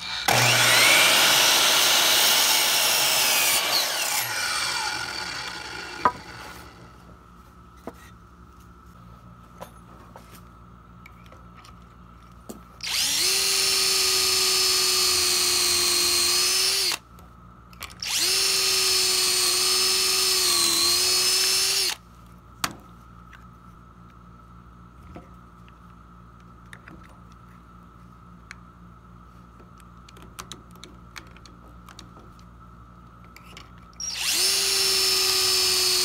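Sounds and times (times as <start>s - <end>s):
cordless drill boring into wood: 0.0s - 6.9s, 12.8s - 17.0s, 18.0s - 22.0s, 34.0s - 36.0s.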